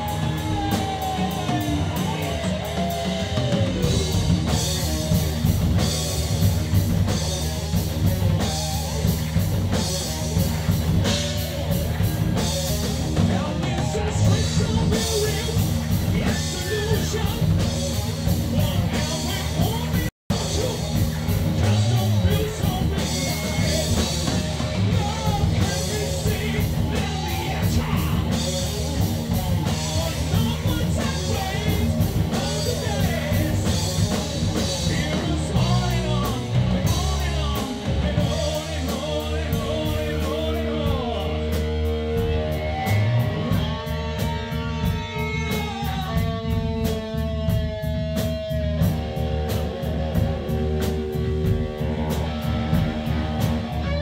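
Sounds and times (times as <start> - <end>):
person singing: 0.0 - 4.8, 13.1 - 17.7, 18.4 - 28.7, 29.6 - 46.2
bass guitar: 0.0 - 54.0
drum kit: 0.0 - 54.0
electric guitar: 0.0 - 54.0.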